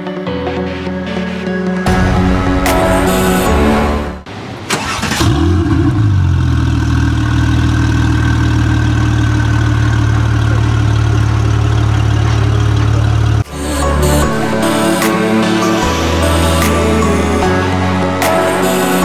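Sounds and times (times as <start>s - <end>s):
electronic music: 0.0s - 4.6s, 12.4s - 19.0s
car engine starting and idling: 2.6s - 17.4s.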